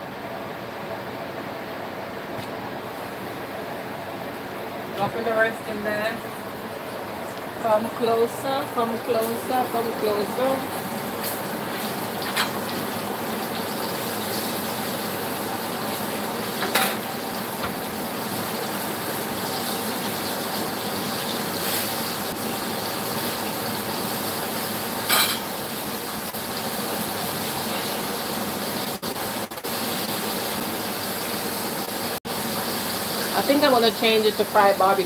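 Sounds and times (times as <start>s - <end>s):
chicken deep-frying in oil: 5.0s - 35.0s.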